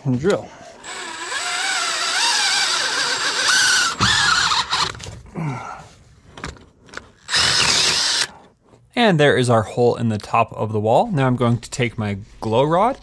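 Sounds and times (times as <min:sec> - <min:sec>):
cordless drill whining through wood: 0:00.8 - 0:05.1, 0:07.2 - 0:08.4.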